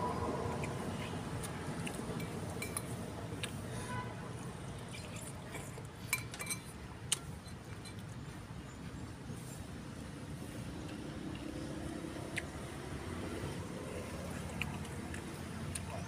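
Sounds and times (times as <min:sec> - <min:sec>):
spoon clinking against a bowl: 0:02.2 - 0:02.9, 0:06.1 - 0:06.7.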